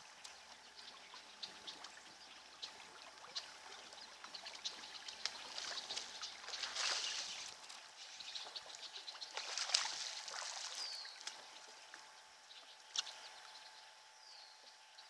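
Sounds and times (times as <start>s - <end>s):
fish splashing in water: 4.6s - 7.9s, 9.2s - 11.6s.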